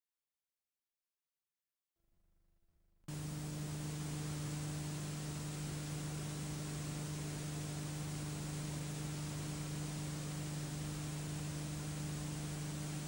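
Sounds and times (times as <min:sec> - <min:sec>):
low electrical hum: 0:03.1 - 0:13.0
steady hiss: 0:03.1 - 0:13.0.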